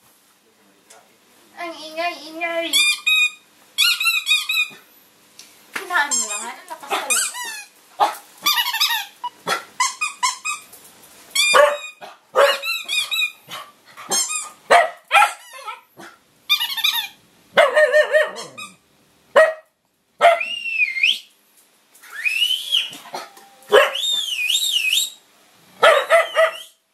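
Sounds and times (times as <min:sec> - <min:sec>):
dog whining: 0:11.4 - 0:14.6, 0:16.5 - 0:18.8, 0:25.8 - 0:26.8
dog barking and yelping: 0:11.4 - 0:20.5, 0:22.9 - 0:24.3, 0:25.8 - 0:26.8.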